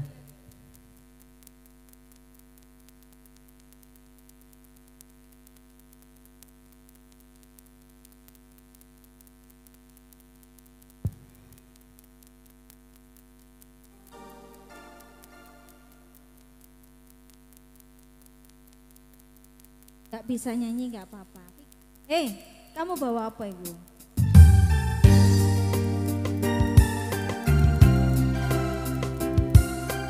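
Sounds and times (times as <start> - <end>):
faint crackle: 0.0 - 24.8
sound system electrical hum: 0.0 - 30.0
sharp thump: 11.0 - 11.6.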